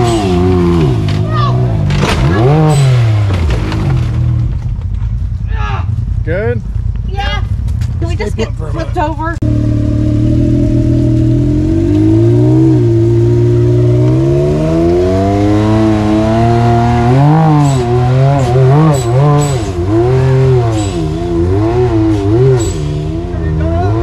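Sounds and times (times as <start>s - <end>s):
utility vehicle engine revving: 0.0s - 4.9s, 6.2s - 24.0s.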